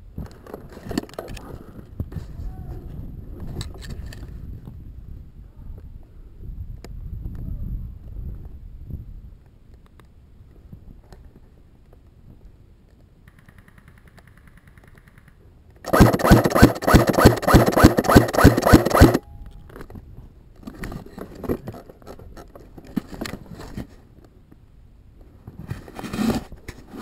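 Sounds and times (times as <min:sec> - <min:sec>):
airsoft gun firing burst: 0:15.9 - 0:19.2.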